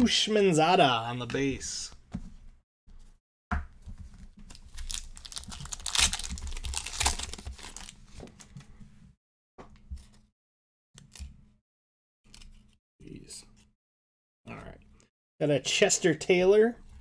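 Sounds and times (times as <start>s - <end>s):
foil wrapper tearing and crinkling: 4.6s - 8.0s.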